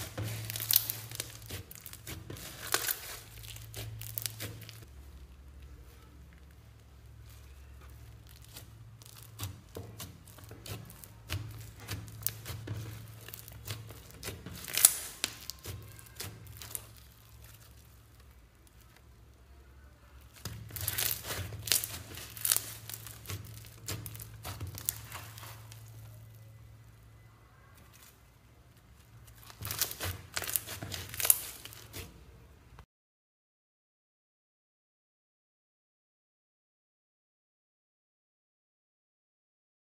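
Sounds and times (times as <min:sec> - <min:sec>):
slime crackling and popping: 0:00.0 - 0:32.8.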